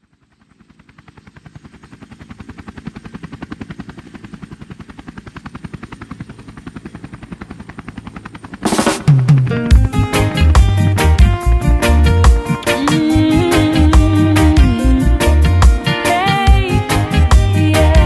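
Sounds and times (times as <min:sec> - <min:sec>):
rapid pulsing rotor-like beat: 0:00.6 - 0:18.0.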